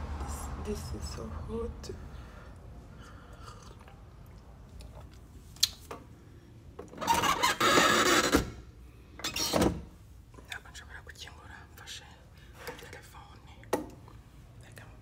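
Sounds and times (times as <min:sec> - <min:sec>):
person slurping from a mug: 0:03.0 - 0:04.1.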